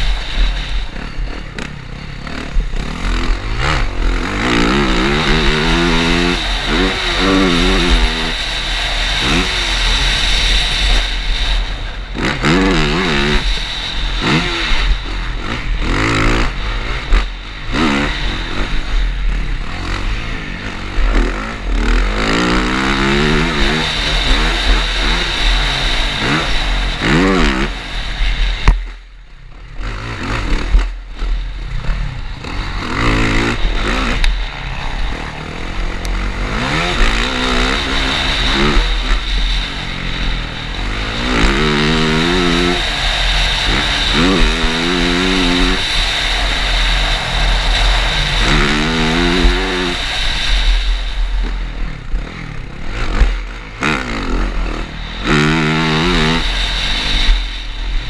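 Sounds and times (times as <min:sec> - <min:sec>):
motocross bike engine revving: 0:00.0 - 0:58.0
wind and track noise: 0:00.0 - 0:58.0.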